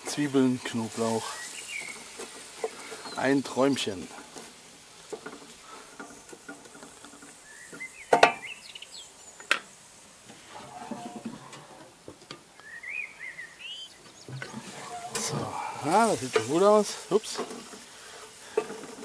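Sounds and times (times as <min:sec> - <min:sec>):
birds chirping: 0:00.0 - 0:04.3, 0:05.4 - 0:09.6, 0:12.5 - 0:18.7
food sizzling in oil: 0:00.0 - 0:11.3, 0:12.6 - 0:19.0
wooden spatula scraping metal pan: 0:10.3 - 0:11.8, 0:14.4 - 0:19.0.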